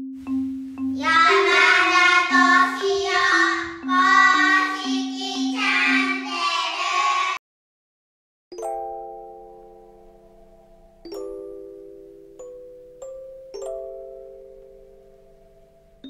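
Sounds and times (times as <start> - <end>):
mallet percussion melody: 0.0 - 6.2, 8.5 - 16.0
person singing: 1.0 - 7.4.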